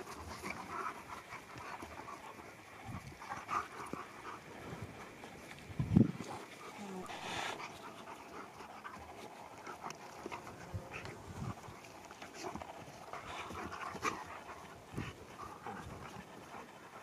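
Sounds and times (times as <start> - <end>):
dogs panting: 0.0 - 17.0.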